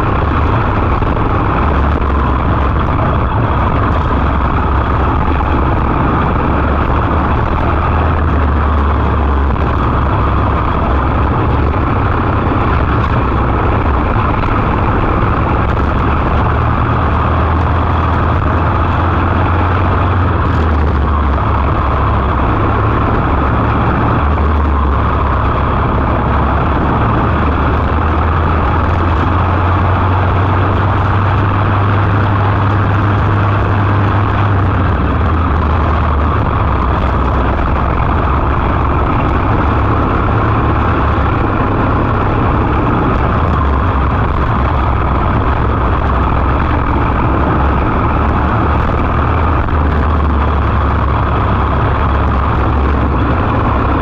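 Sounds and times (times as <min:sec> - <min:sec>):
kart engine running hard: 0:00.0 - 0:54.0.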